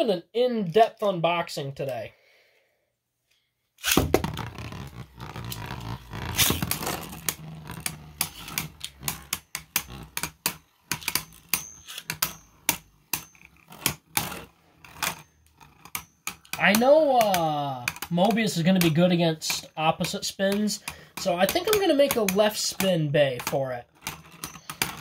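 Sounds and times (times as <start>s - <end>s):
spinning tops whirring: 3.8s - 22.9s
spinning tops clacking together: 6.2s - 22.9s.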